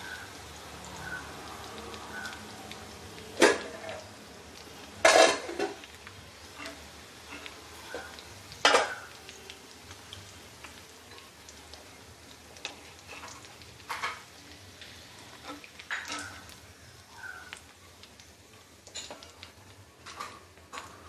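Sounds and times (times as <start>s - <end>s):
chicken sizzling in hot oil: 0.0s - 21.0s.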